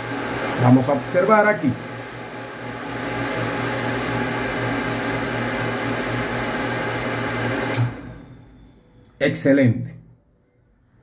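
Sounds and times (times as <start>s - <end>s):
electric water pump humming: 0.0s - 8.4s.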